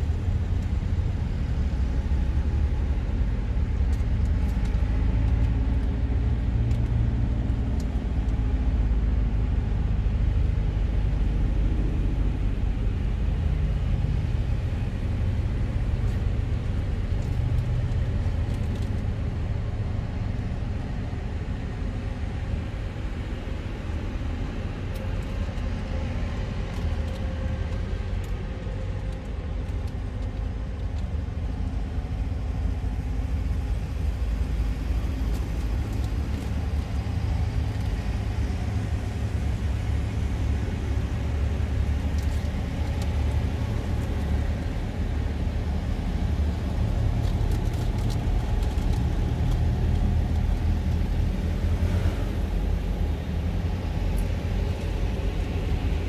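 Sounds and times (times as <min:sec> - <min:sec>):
tractor diesel engines droning: 0:00.0 - 0:56.0.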